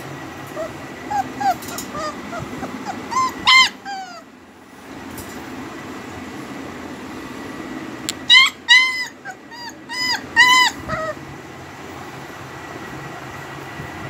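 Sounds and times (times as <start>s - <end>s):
low background hum: 0.0s - 14.0s
puppy yelping: 0.4s - 4.4s, 8.1s - 11.3s.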